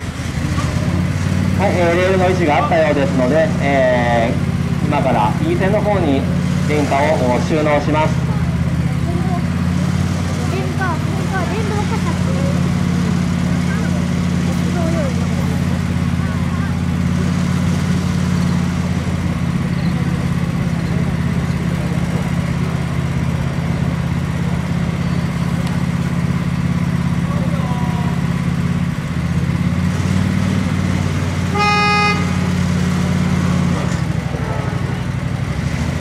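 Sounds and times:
short horn toot: 31.5s - 32.5s.

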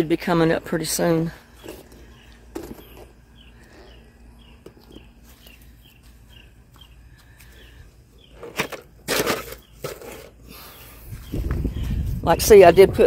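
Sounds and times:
small bird chirping: 1.5s - 8.5s, 10.6s - 12.9s.

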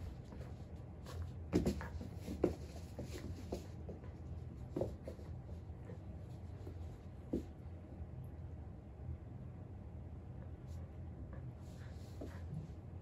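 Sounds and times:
puppy scuffling with plush toy: 0.0s - 7.6s.

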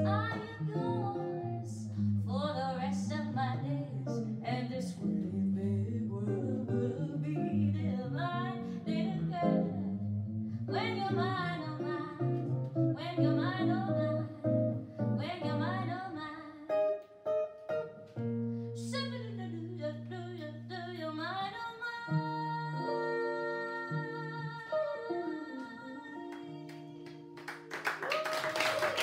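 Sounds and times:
woman singing jazz: 0.0s - 17.0s, 18.7s - 27.4s
acoustic jazz guitar: 0.0s - 27.7s.

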